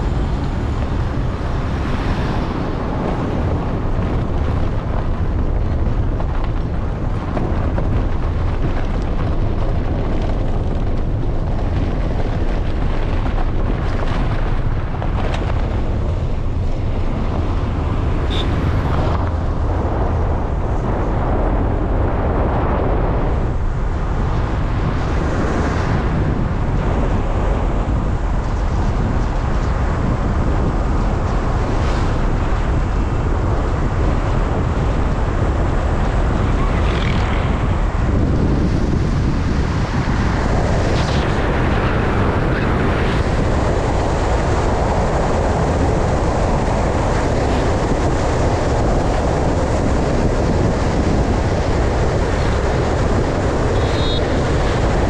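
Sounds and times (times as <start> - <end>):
car road noise: 0.0 - 55.0
wind buffeting microphone: 0.0 - 55.0.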